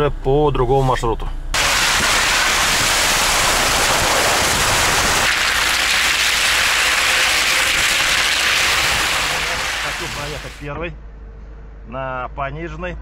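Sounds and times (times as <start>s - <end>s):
wet tyre noise: 1.6s - 10.6s
wind hiss: 1.6s - 10.6s.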